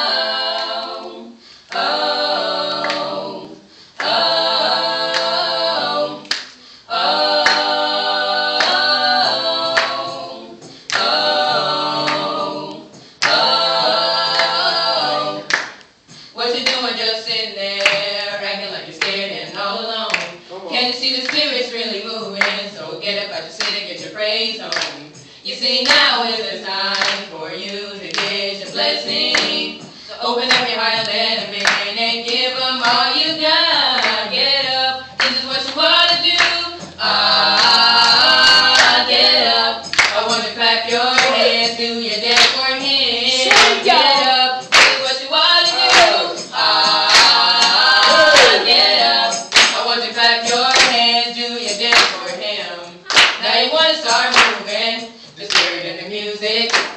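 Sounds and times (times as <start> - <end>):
vocal trio singing: 0.0 - 56.9
hand claps: 1.7 - 1.9, 2.8 - 3.1, 4.0 - 4.2, 5.1 - 5.4, 6.2 - 6.6, 7.4 - 7.7, 8.6 - 13.5, 14.3 - 14.6, 15.5 - 16.9, 17.8 - 18.1, 20.1 - 20.4, 21.2 - 21.5, 22.4 - 22.6, 23.6 - 23.8, 24.7 - 26.2, 26.9 - 33.0, 33.9 - 37.0, 37.6 - 40.5, 41.2 - 42.7, 43.4 - 49.9, 50.5 - 52.4, 53.1 - 53.5, 54.1 - 54.7, 55.5 - 55.8, 56.7 - 56.9.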